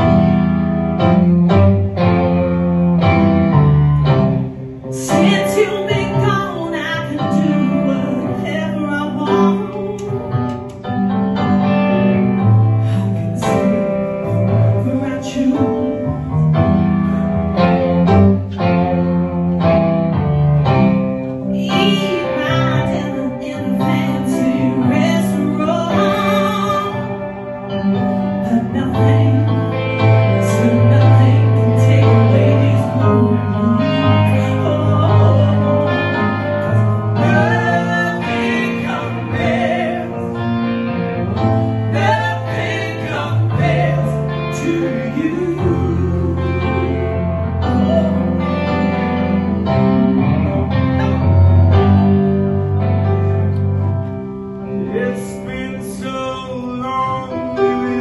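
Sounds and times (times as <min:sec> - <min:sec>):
electric keyboard chords: 0:00.0 - 0:58.0
man and woman singing soul: 0:12.8 - 0:16.4, 0:21.6 - 0:50.7, 0:54.7 - 0:58.0.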